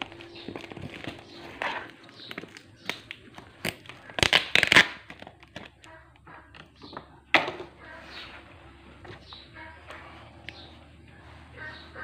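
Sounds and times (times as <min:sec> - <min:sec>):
cardboard rustling and scraping: 0:00.0 - 0:05.8
cardboard crackling: 0:00.0 - 0:12.0.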